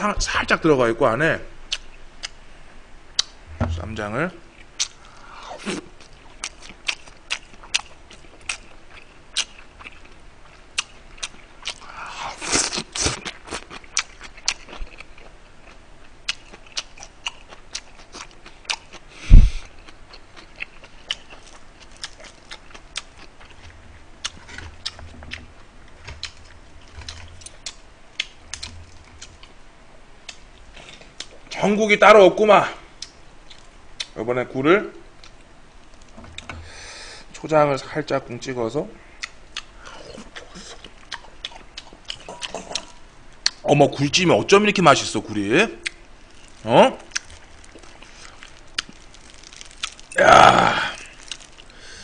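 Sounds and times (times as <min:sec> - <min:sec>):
loud thump: 0:03.5 - 0:04.0, 0:19.3 - 0:19.6
close chewing with wet mouth clicks: 0:06.0 - 0:19.0, 0:39.2 - 0:43.6, 0:45.8 - 0:50.2, 0:51.0 - 0:51.8.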